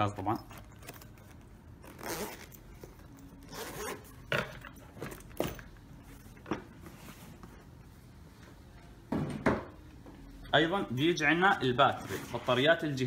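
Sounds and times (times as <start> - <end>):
zipper being drawn: 1.8 - 2.6, 3.4 - 4.4.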